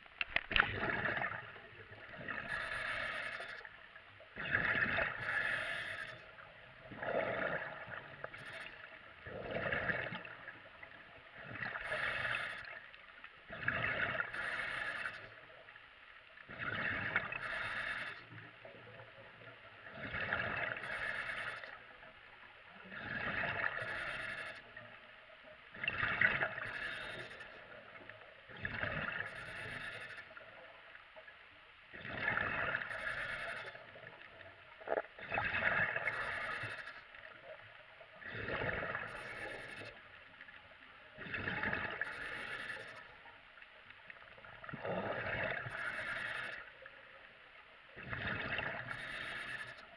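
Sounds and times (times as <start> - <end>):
exhaled air bubbling: 0.0 - 3.7, 4.3 - 15.4, 16.4 - 18.2, 19.0 - 21.8, 22.8 - 24.6, 25.7 - 30.5, 31.9 - 40.0, 41.2 - 43.1, 44.2 - 46.9, 47.9 - 49.8
diver breathing through regulator: 2.3 - 3.7, 5.2 - 6.4, 11.7 - 12.8, 14.3 - 15.3, 17.3 - 18.4, 20.8 - 21.8, 23.2 - 24.7, 26.6 - 27.7, 29.2 - 30.4, 32.7 - 33.9, 35.9 - 37.0, 41.6 - 43.1, 44.8 - 46.8, 48.6 - 49.9.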